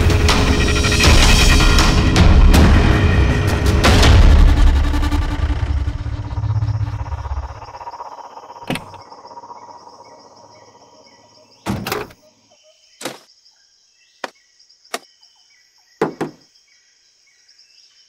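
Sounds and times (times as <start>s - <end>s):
vehicle engine: 3.0s - 10.9s
crickets chirping: 4.5s - 18.0s
sharp knocks: 16.0s - 16.4s.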